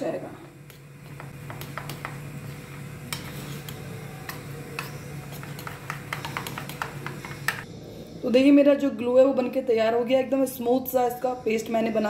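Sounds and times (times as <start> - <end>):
spoon clinking and scraping bowl: 3.1 - 7.6.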